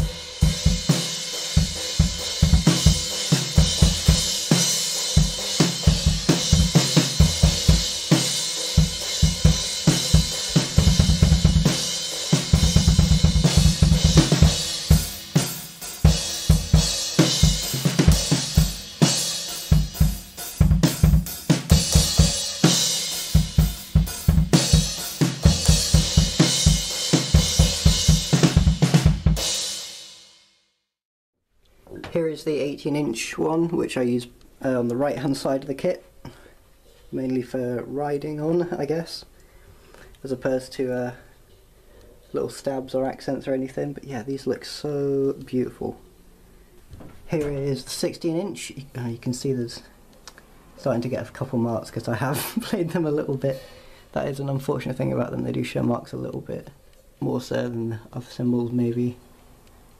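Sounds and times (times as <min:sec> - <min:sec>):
drum kit played hard: 0:00.0 - 0:30.4.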